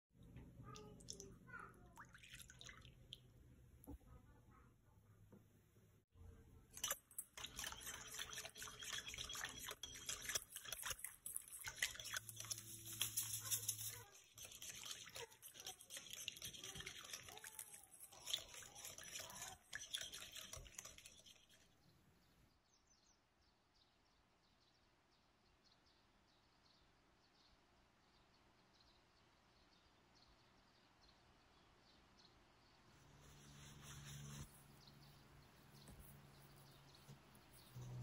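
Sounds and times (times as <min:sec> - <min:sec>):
whisk beating liquid in glass bowl: 0:06.8 - 0:21.7.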